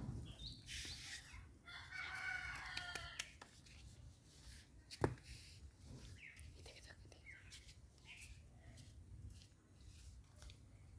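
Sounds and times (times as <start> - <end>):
rooster crowing: 1.6 - 3.3.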